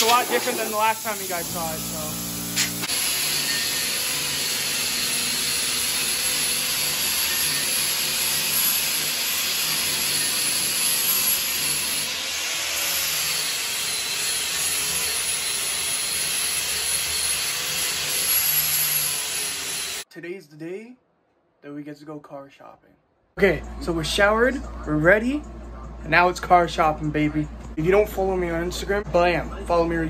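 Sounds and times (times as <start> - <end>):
grinder sanding steel: 0.0 - 20.0.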